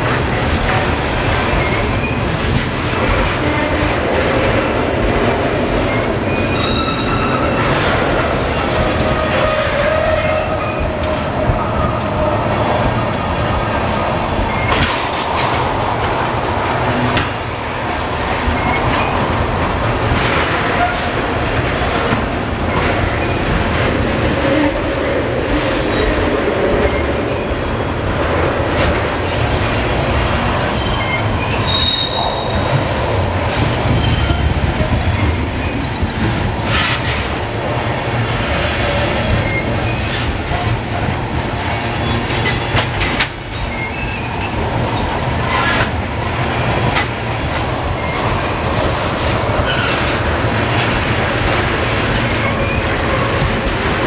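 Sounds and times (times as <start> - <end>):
train wheels rumbling on rails: 0.0 - 54.0
high wheel squeals: 5.9 - 7.7, 30.8 - 32.7.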